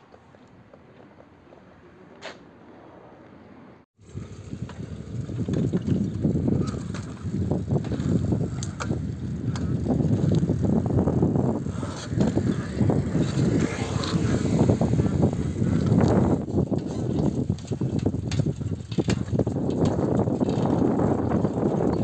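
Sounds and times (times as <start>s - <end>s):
air noise on microphone: 4.0s - 18.3s
bicycle rumbling on asphalt: 4.0s - 22.0s.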